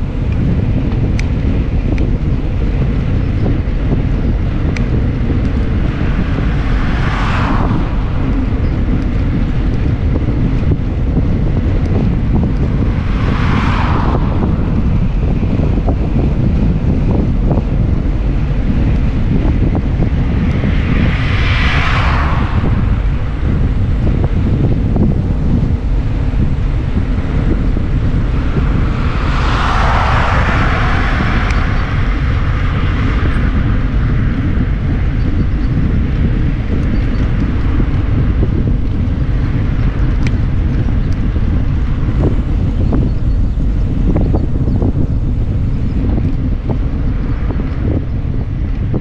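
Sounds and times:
car tyres passing: 0.0s - 49.0s
wind buffeting microphone: 0.0s - 49.0s.

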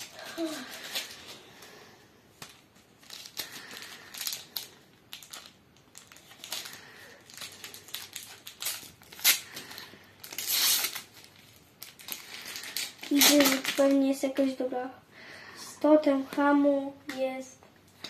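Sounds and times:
wrapper crinkling: 0.0s - 1.5s, 2.4s - 14.4s
wrapper tearing open: 2.4s - 14.0s.

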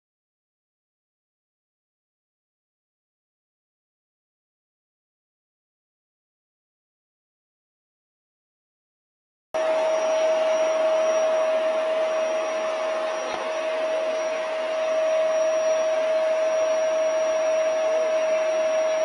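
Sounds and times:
appliance electric motor whining: 9.6s - 19.0s.

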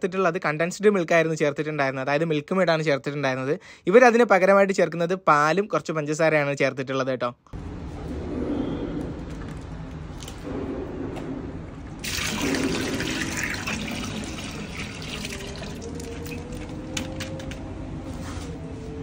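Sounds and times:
milk pouring into pot of water: 12.0s - 16.8s.

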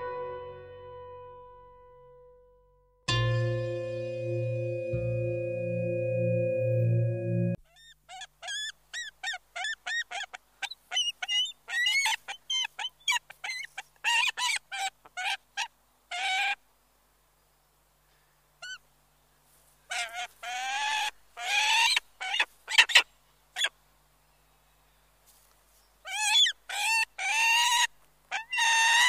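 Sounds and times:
eagle yelping calls: 7.7s - 16.6s, 19.9s - 23.0s, 26.0s - 29.0s.

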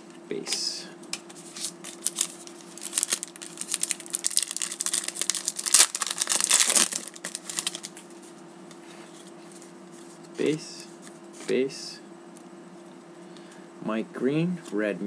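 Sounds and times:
foil wrapper tearing and crinkling: 1.9s - 8.0s.

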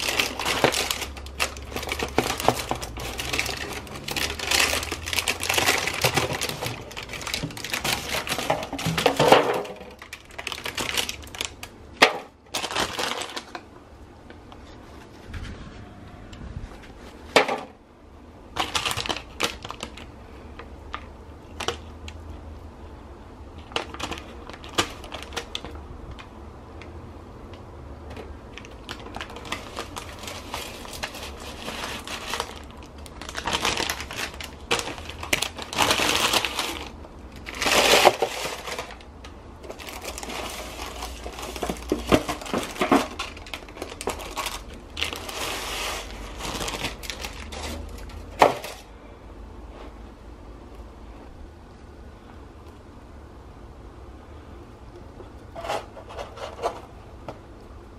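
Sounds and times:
baking paper crinkling: 0.0s - 13.7s, 18.5s - 20.2s, 23.5s - 26.3s, 28.1s - 48.9s, 55.5s - 56.9s.

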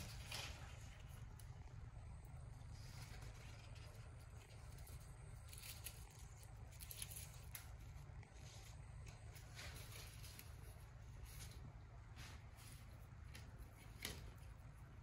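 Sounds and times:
low room hum: 0.0s - 15.0s
soft rustles: 2.6s - 14.6s.

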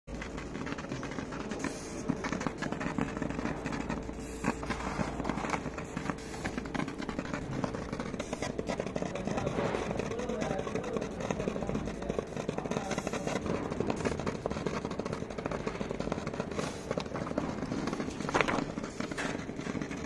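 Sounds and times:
laser cutter humming: 0.1s - 20.0s.

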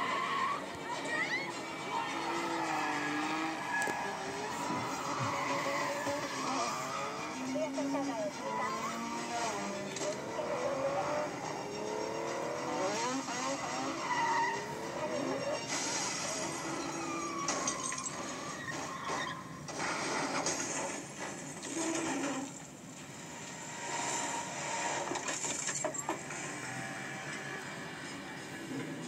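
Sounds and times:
tyres squealing: 0.0s - 10.2s, 13.0s - 20.4s
car engines revving: 0.0s - 29.0s.

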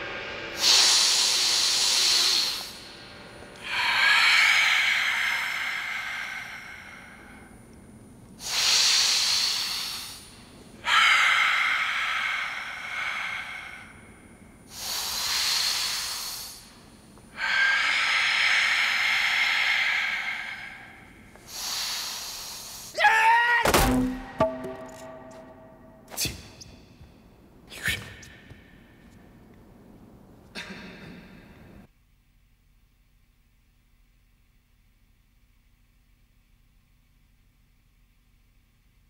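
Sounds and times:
forceful hissing breaths: 0.0s - 7.7s, 8.4s - 23.0s.

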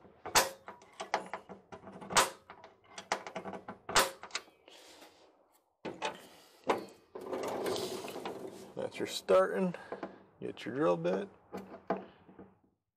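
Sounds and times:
center punch snapping on metal: 0.3s - 0.7s, 3.9s - 4.4s.

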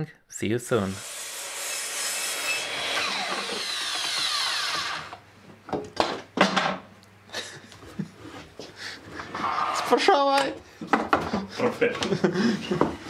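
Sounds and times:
miter saw spinning down: 1.0s - 5.2s.

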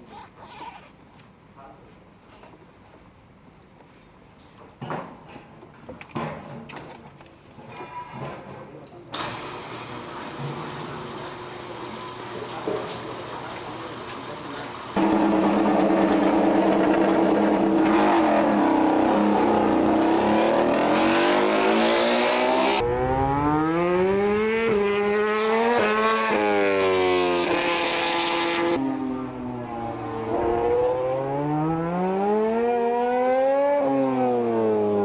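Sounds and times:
motorcycle engine revving: 15.0s - 35.0s.

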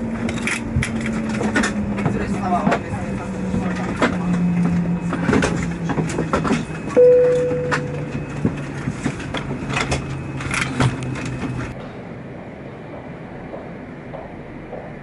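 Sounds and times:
loud chime: 6.9s - 8.2s.

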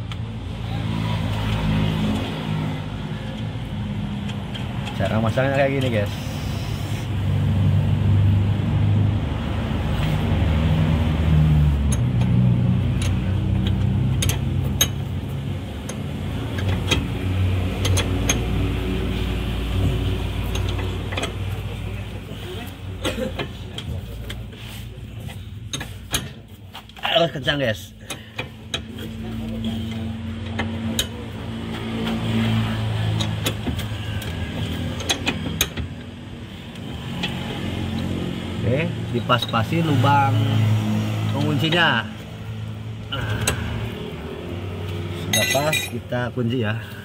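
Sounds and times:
engine hum: 0.0s - 47.0s
wrench clinking on metal nut: 45.3s - 46.0s.

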